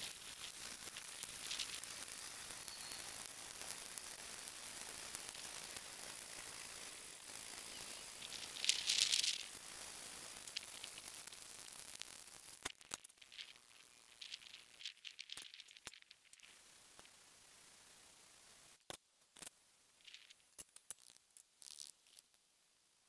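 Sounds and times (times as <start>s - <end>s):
coffee beans rattling in pot: 0.0s - 3.1s, 4.7s - 11.2s, 12.7s - 16.6s
gas burner hiss: 0.0s - 12.8s.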